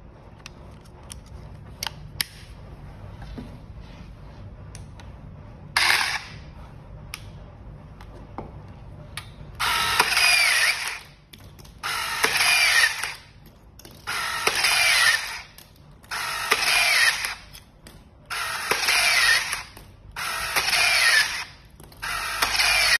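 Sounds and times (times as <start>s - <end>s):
rebar tying tool whirring: 9.6s - 23.0s.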